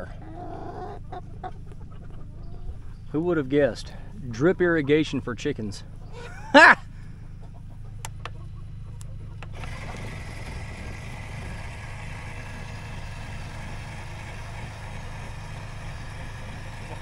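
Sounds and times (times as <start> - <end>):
steady low hum: 0.0 - 17.0
electric gear motor running: 8.1 - 17.0.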